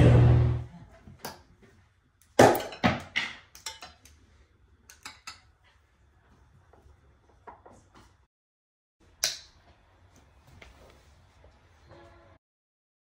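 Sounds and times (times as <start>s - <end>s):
glassware and utensils clinking: 3.6s - 4.0s.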